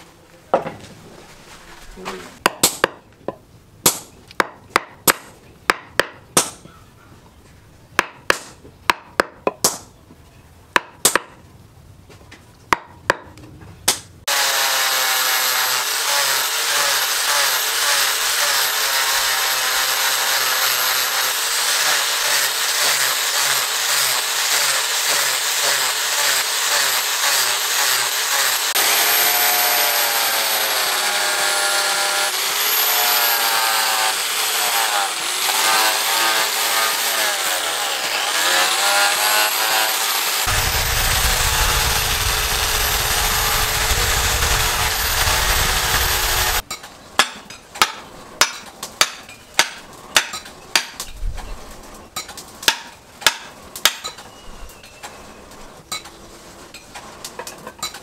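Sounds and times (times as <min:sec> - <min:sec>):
hatchet chopping wood: 0:02.4 - 0:03.1, 0:03.8 - 0:06.7, 0:08.0 - 0:09.9, 0:10.8 - 0:11.4, 0:12.7 - 0:13.3, 0:13.9 - 0:14.1, 0:19.7 - 0:30.0, 0:46.1 - 0:51.1, 0:52.2 - 0:54.2
angle grinder sanding wood: 0:14.3 - 0:46.6.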